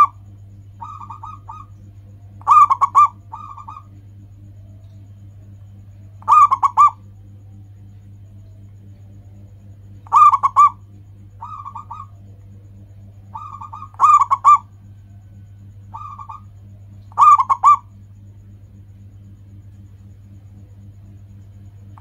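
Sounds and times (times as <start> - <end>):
dove cooing: 0.0 - 7.2, 8.1 - 18.1
low hum: 0.0 - 22.0.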